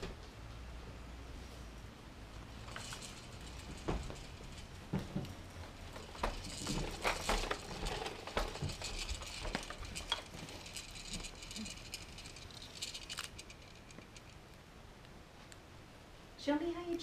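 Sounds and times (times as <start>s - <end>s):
plastic baby toys rattling and clicking: 2.5s - 14.4s.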